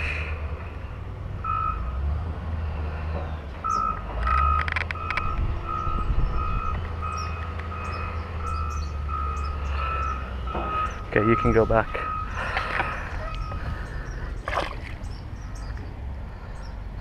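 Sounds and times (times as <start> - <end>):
low engine rumble: 0.0 - 17.0
reversing alarm beeping: 1.4 - 2.0, 3.6 - 13.7
sharp clicks: 4.2 - 5.5.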